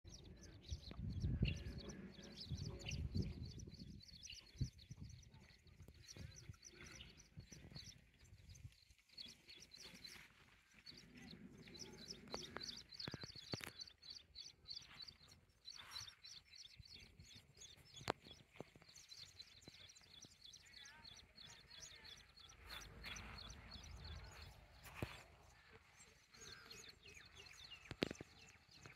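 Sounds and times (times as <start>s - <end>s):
small birds chirping: 0.0s - 28.9s
wind buffeting microphone: 0.1s - 8.7s.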